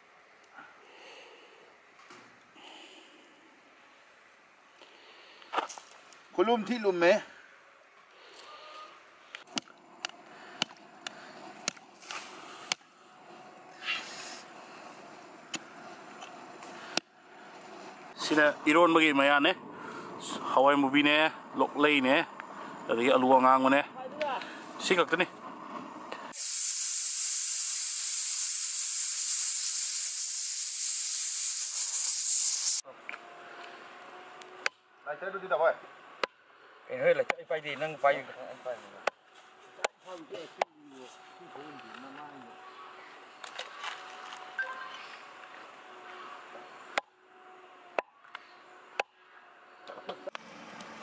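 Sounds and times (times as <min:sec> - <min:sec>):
pressure cooker hissing steam: 0:26.3 - 0:32.8.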